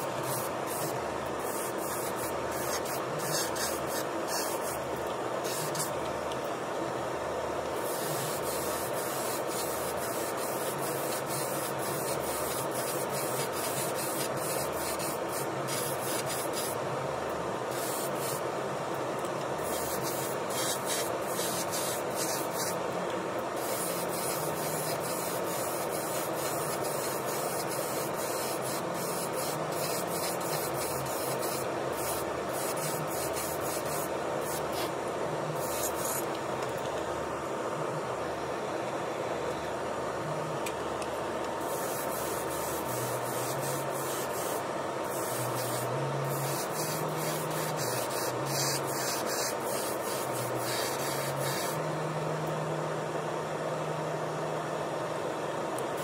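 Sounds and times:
airbrush hissing: 0:00.0 - 0:06.0, 0:07.8 - 0:16.8, 0:17.7 - 0:18.4, 0:19.6 - 0:22.8, 0:23.6 - 0:34.9, 0:35.6 - 0:36.3, 0:41.6 - 0:51.8.

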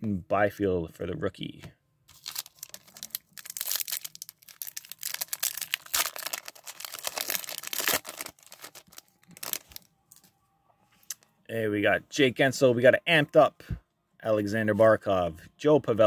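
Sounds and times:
foil wrapper tearing and crinkling: 0:02.1 - 0:09.8.

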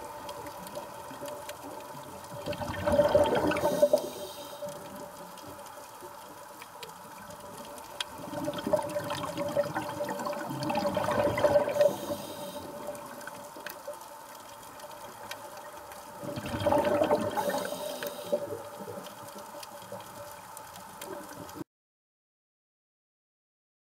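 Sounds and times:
faint steady tone: 0:00.0 - 0:08.1, 0:09.5 - 0:16.2
exhaled bubbles gushing: 0:02.1 - 0:04.3, 0:08.1 - 0:13.6, 0:16.2 - 0:19.0
diver breathing through regulator: 0:03.4 - 0:04.9, 0:11.7 - 0:13.0, 0:17.3 - 0:18.6.

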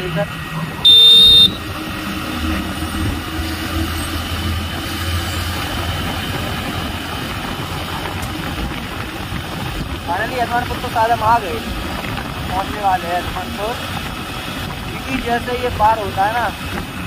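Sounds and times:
motorcycle engine running: 0:00.0 - 0:17.0
wind on microphone: 0:00.5 - 0:17.0
vehicle horn: 0:00.8 - 0:01.8.

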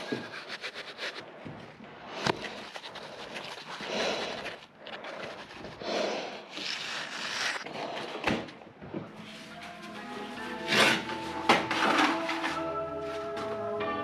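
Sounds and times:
hands scraping wet mortar and brick: 0:00.0 - 0:01.4, 0:02.1 - 0:08.2.

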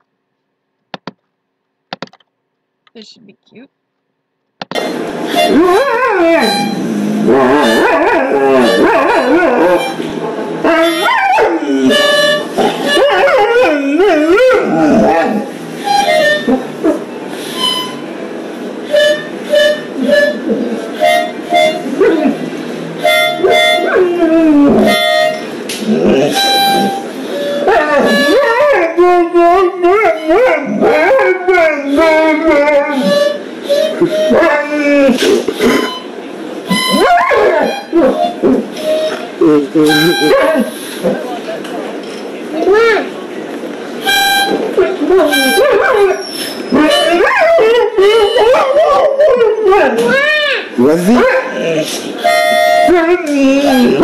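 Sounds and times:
dog howling and yipping: 0:05.5 - 0:06.6, 0:07.2 - 0:10.0, 0:10.6 - 0:15.5, 0:23.4 - 0:25.2, 0:25.8 - 0:33.2, 0:34.0 - 0:35.2, 0:36.9 - 0:38.6, 0:44.8 - 0:50.3, 0:51.0 - 0:51.9.

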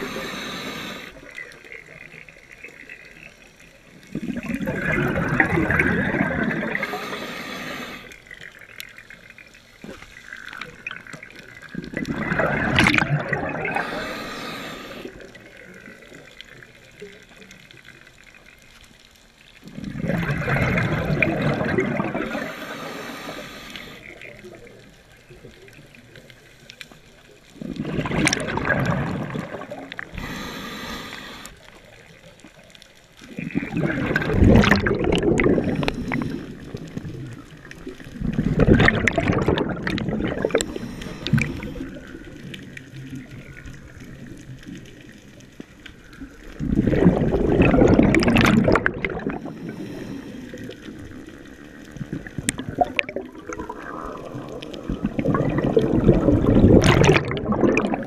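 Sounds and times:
diver exhaling bubbles: 0:00.0 - 0:01.2, 0:04.1 - 0:08.2, 0:10.6 - 0:16.2, 0:19.6 - 0:24.6, 0:27.6 - 0:31.5, 0:33.2 - 0:42.4, 0:46.5 - 0:58.0.

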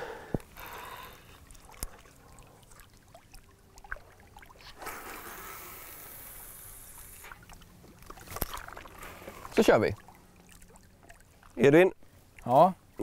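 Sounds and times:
fishing line hissing off reel: 0:04.6 - 0:07.4.

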